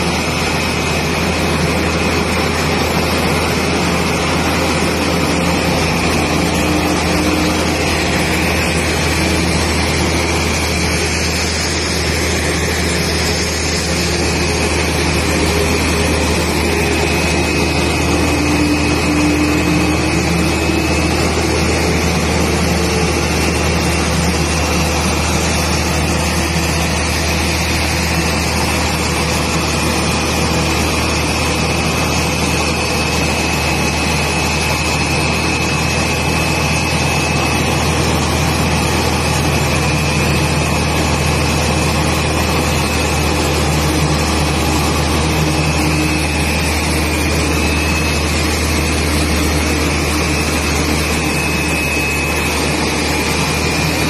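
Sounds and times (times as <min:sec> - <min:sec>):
steady high whine: 0:00.0 - 0:54.0
tug engine running under load: 0:00.0 - 0:54.0.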